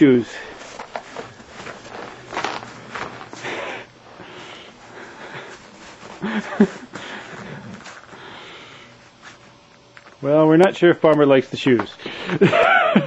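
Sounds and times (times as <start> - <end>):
footsteps crunching in snow: 0.2 - 8.2.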